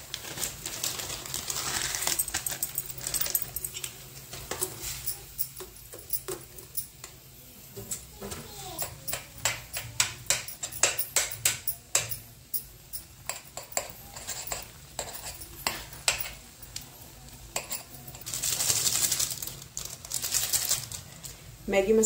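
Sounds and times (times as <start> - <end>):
spoon clinking against a pan: 8.8 - 16.8, 17.5 - 18.3.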